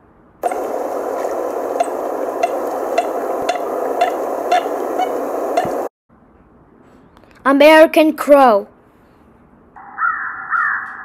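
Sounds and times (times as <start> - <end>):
water-like rustle: 0.4 - 5.9.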